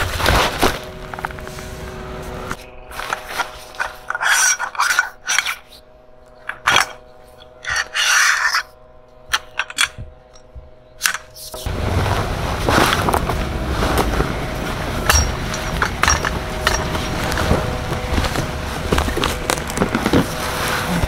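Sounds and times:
tent fabric rustling: 0.0 - 3.9, 11.6 - 21.0.

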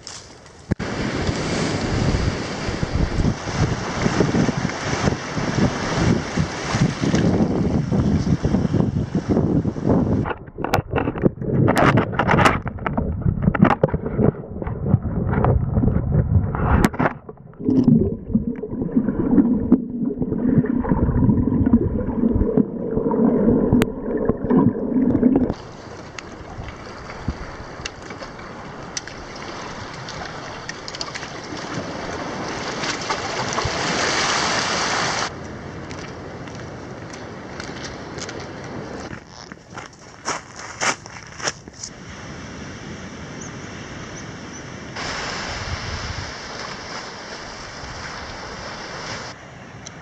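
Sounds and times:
wind rumbling on microphone: 0.7 - 34.6, 41.6 - 49.4
water sloshing and gurgling: 10.0 - 34.9
underwater water hiss: 45.0 - 49.3.

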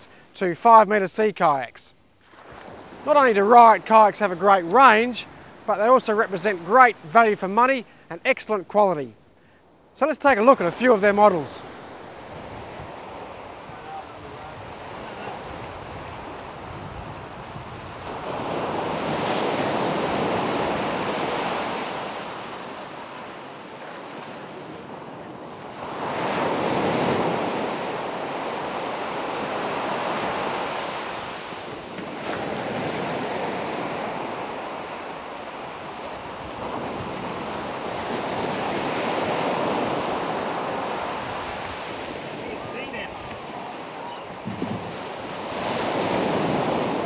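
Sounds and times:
ocean surf breaking on beach: 2.2 - 9.2, 9.9 - 47.0
wind noise on microphone: 12.2 - 21.1, 41.2 - 47.0.

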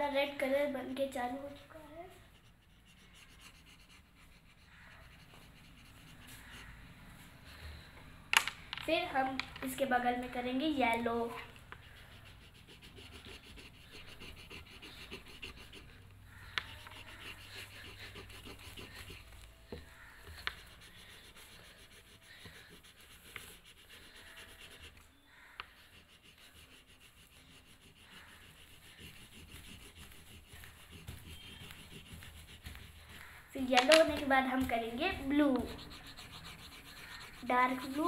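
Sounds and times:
wax crayon rubbing on paper: 1.4 - 6.8, 9.8 - 38.0.

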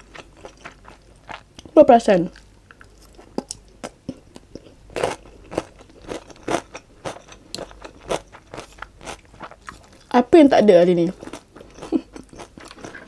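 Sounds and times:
cucumber chewing crunches: 0.0 - 10.2, 11.2 - 13.0.

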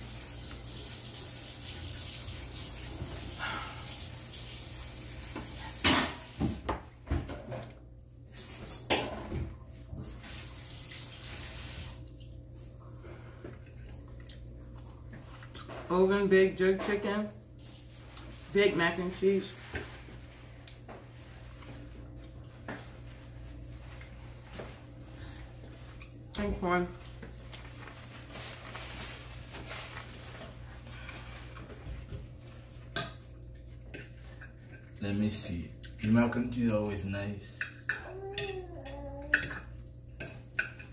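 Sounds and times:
kitchen tap running: 0.0 - 6.7, 10.1 - 12.0
dishes and cutlery clinking: 7.2 - 10.4, 32.8 - 35.0, 36.0 - 40.9.

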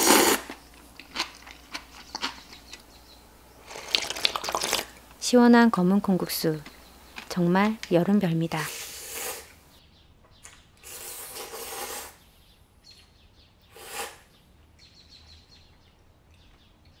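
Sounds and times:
person slurping noodles: 0.0 - 1.4, 3.6 - 5.0, 8.7 - 9.5, 10.9 - 12.2, 13.8 - 14.2.

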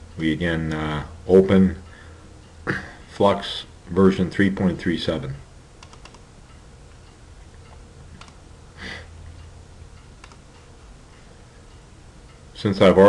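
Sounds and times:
low steady hum: 0.0 - 13.0
computer mouse clicks: 5.8 - 6.2, 7.7 - 8.4, 10.2 - 10.5.

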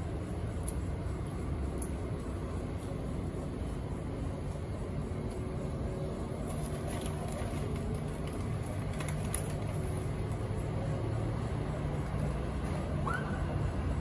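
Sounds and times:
low outdoor rumble: 0.0 - 14.0.

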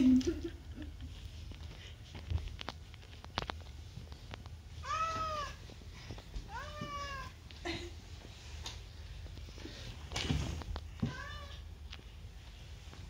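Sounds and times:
cat meowing: 4.8 - 5.6, 6.5 - 7.4.

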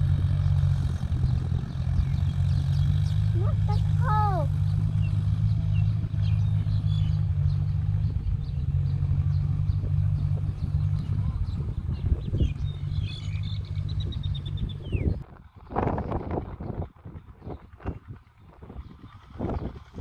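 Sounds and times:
tractor engine running: 0.0 - 20.0
birds chirping: 0.7 - 15.2.

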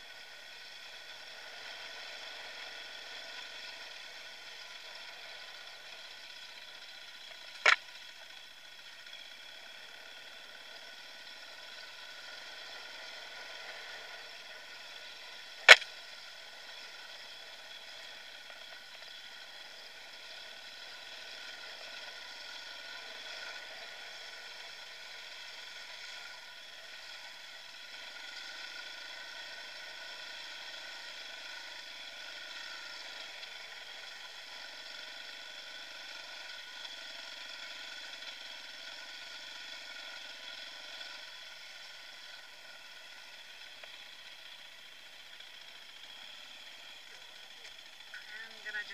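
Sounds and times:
dirt bike engine running: 0.0 - 48.9
sharp clicks: 15.7 - 15.9.

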